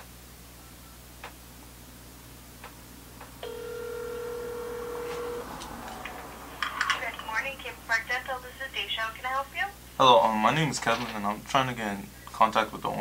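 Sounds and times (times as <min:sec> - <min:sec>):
phone ringback tone: 0:03.4 - 0:07.4.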